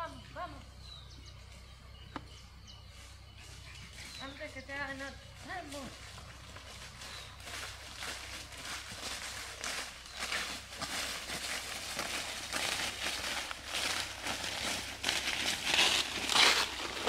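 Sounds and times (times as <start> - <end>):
footsteps crunching dry leaves: 0.8 - 17.0.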